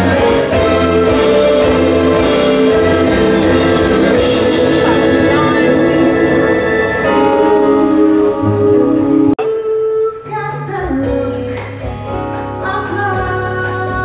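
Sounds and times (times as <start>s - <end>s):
band playing held chords: 0.0s - 9.5s
group of singers singing: 0.0s - 10.1s.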